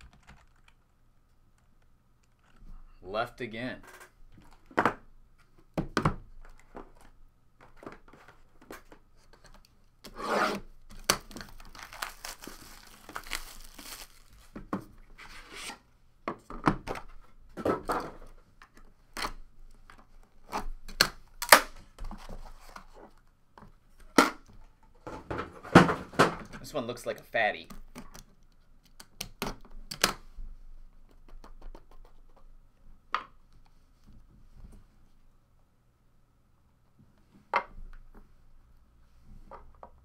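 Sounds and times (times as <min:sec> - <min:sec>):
plastic shrink-wrap tearing: 0:11.0 - 0:14.5.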